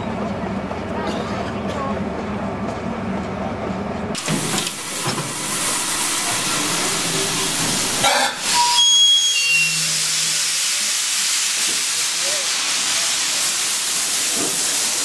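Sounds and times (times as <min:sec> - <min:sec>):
steam hissing from locomotive: 0:04.2 - 0:15.0.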